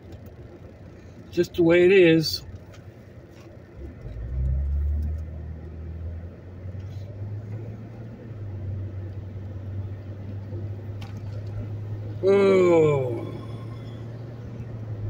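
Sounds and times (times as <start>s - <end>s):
vehicle engine accelerating: 2.4s - 15.0s
tyre noise on wet road: 2.6s - 15.0s.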